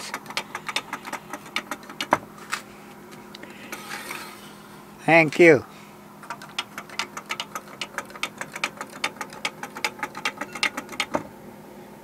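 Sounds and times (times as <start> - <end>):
wooden toy clacking on track: 0.0 - 2.2, 6.2 - 11.2.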